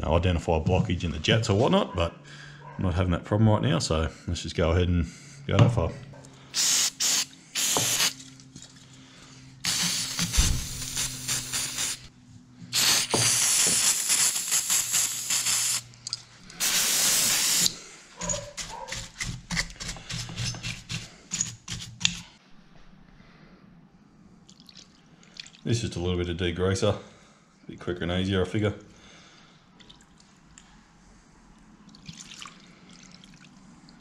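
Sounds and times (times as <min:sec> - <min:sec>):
aerosol can spraying: 0:06.6 - 0:08.2, 0:09.6 - 0:12.1, 0:12.7 - 0:15.8, 0:16.6 - 0:19.2
stiff brush scrubbing: 0:17.6 - 0:22.4.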